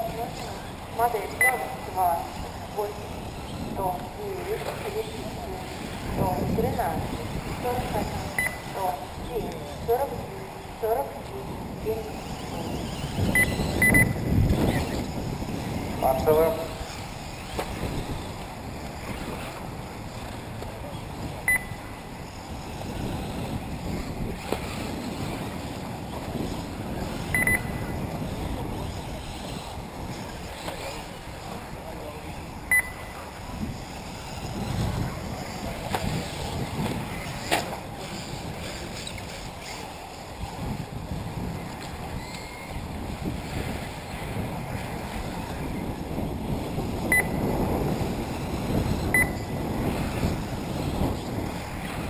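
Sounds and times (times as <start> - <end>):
electric rc cars running: 0.0 - 52.0
wind on microphone: 0.0 - 52.0
short high electronic beeps: 1.4 - 1.8, 8.4 - 8.7, 13.4 - 14.9, 21.5 - 21.8, 27.3 - 27.8, 32.7 - 33.1, 47.1 - 47.4, 49.2 - 49.5.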